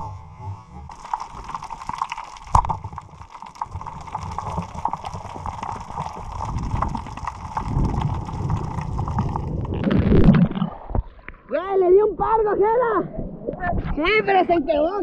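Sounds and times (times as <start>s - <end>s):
underwater crackling and clicking: 0.0s - 11.6s
water rushing: 0.0s - 11.8s.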